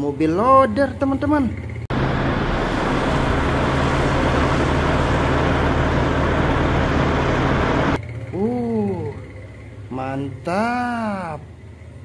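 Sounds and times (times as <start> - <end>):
diesel engine running: 1.7 - 8.0.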